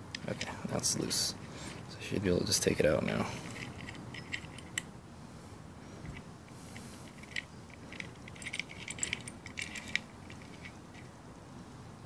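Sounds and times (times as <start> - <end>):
metal clutch plate clinking: 3.0 - 4.8, 7.1 - 11.1.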